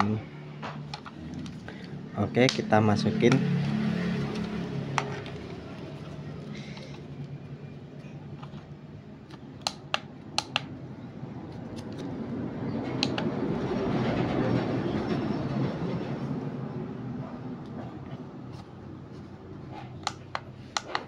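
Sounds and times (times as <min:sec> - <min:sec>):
sharp plastic clicks: 0:09.3 - 0:10.7.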